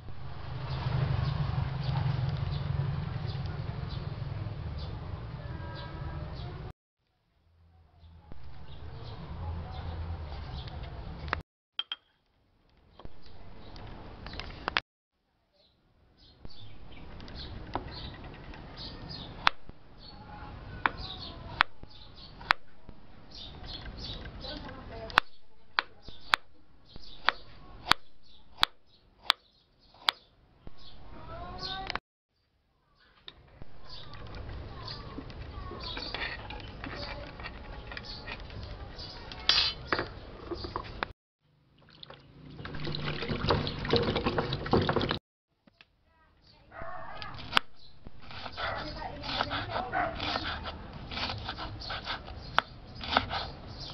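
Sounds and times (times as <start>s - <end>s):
hands splashing in water: 41.8s - 45.2s
knife scraping into clay pot: 47.2s - 53.9s.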